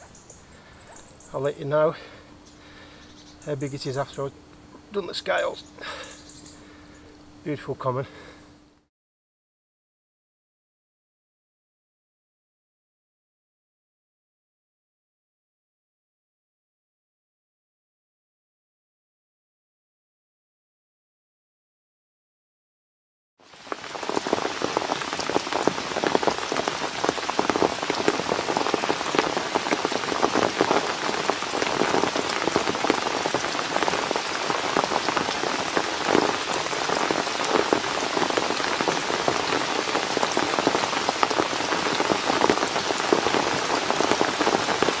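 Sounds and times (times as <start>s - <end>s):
steady rain falling: 0.0s - 8.8s, 23.4s - 45.0s.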